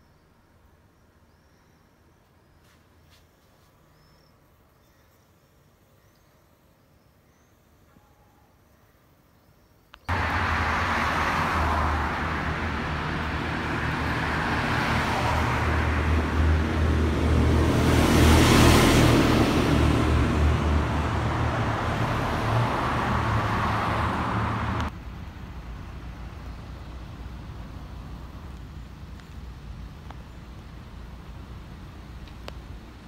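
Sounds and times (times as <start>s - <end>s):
road noise: 9.9s - 33.0s
vehicle engine drone: 10.1s - 33.0s.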